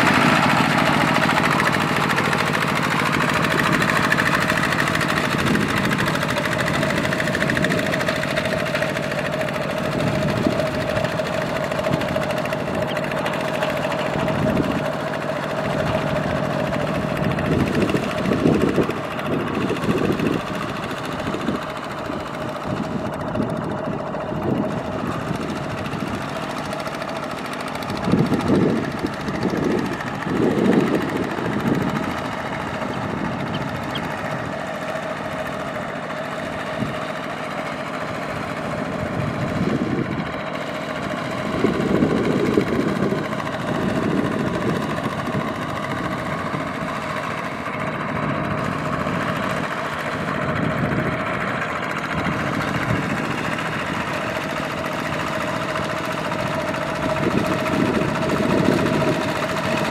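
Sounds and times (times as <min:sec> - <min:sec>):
steady whine: 0:00.0 - 0:37.0
diesel engine under load: 0:00.0 - 0:59.9.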